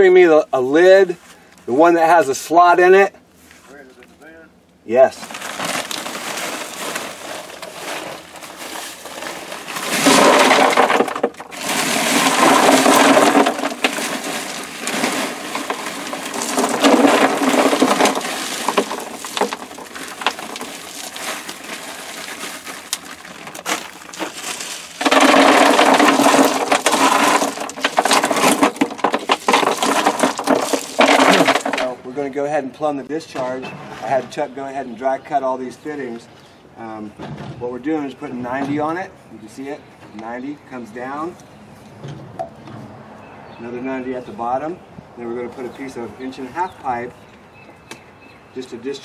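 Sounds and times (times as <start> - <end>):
gravel poured onto gravel: 5.2 - 32.0
stones rattling and shifting: 5.2 - 32.0.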